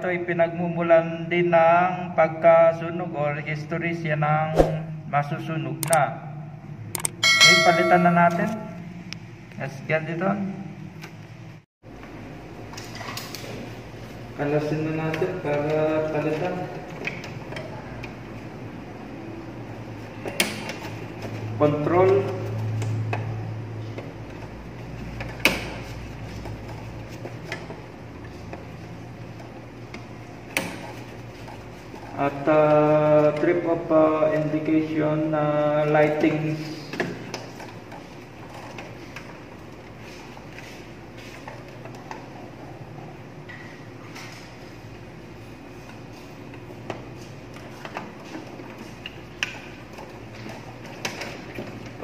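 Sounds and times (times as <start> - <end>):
low steady hum: 5.8 - 11.6
screwdriver metallic clicks: 7.0 - 7.2.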